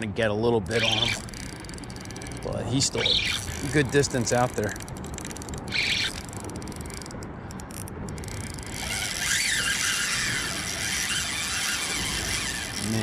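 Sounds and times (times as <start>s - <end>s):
fishing reel squealing: 0.7s - 13.0s
fishing reel ticking: 0.7s - 13.0s.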